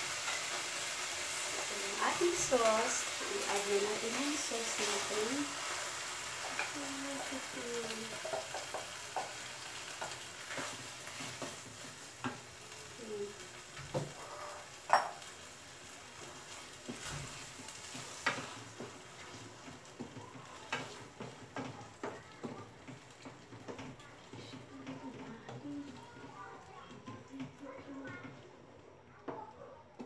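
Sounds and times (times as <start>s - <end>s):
sauce sizzling in frying pan: 0.0s - 28.4s
spatula scraping and knocking pan: 0.2s - 12.5s, 16.2s - 28.4s.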